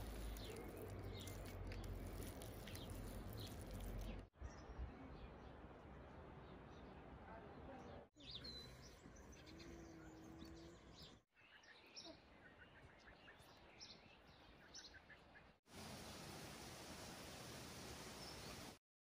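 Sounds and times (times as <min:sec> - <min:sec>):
birds chirping: 0:00.0 - 0:05.6, 0:08.2 - 0:15.6
outdoor hiss: 0:15.7 - 0:18.8.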